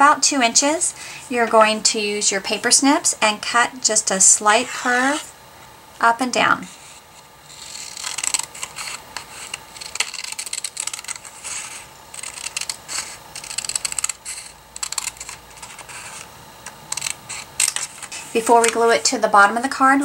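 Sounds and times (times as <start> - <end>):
scissors snipping cardstock: 7.6 - 16.3, 16.9 - 18.8.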